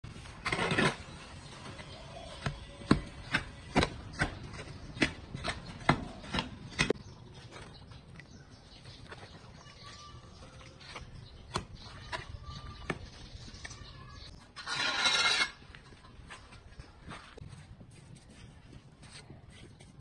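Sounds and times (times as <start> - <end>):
metal hoe scraping mortar on concrete: 0.1 - 1.7, 14.3 - 16.6
soft stirring of wet mortar: 0.1 - 20.0.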